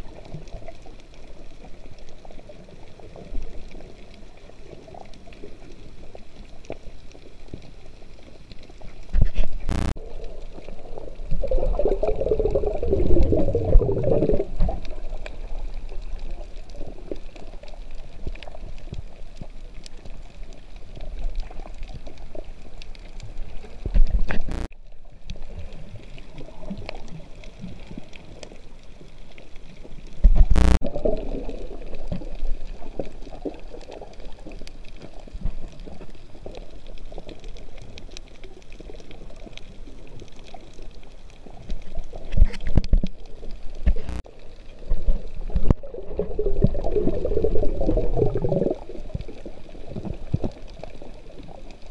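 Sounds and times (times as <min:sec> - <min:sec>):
faint underwater clicks: 0:00.0 - 0:51.9
muffled underwater rush: 0:00.0 - 0:51.9
bubbling gurgling bursts: 0:11.2 - 0:14.8, 0:45.6 - 0:49.0.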